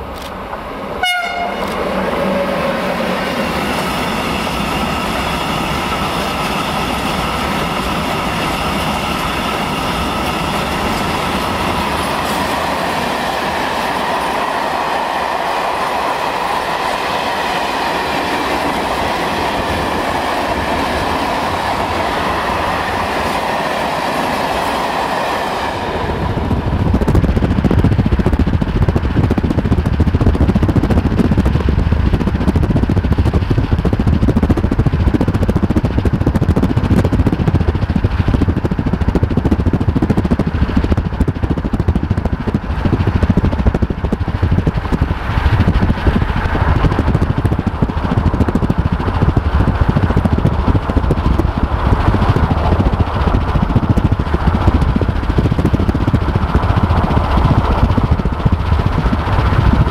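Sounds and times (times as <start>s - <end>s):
train wheels rumbling and clattering: 0.0s - 59.9s
locomotive horn blast: 1.0s - 1.8s.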